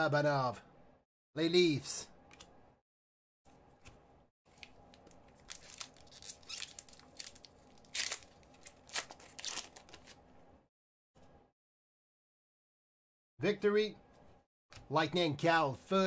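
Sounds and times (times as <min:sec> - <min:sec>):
foil wrapper crinkling rips: 0:04.5 - 0:10.2.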